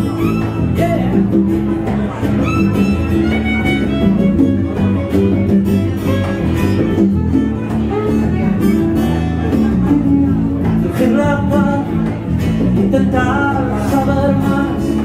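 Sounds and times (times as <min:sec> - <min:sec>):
electric bass guitar: 0:00.0 - 0:15.0
strummed acoustic guitar: 0:00.0 - 0:15.0
violin melody: 0:02.2 - 0:09.5.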